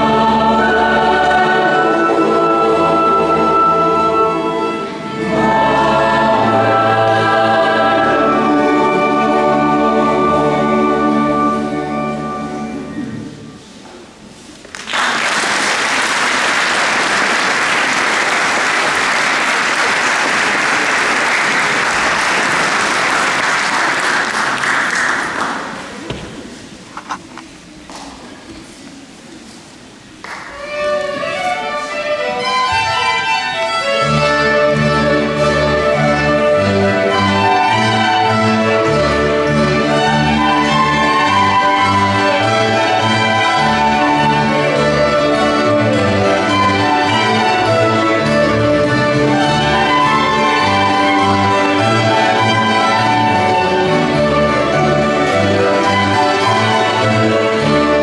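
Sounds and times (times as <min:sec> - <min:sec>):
violins playing carol: 0:00.0 - 0:13.8, 0:30.4 - 0:58.0
audience applauding: 0:14.7 - 0:26.0.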